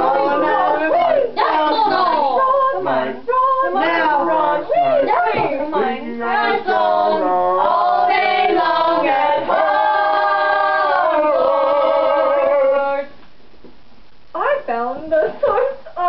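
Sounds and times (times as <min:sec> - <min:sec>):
voices singing: 0:00.0 - 0:13.2.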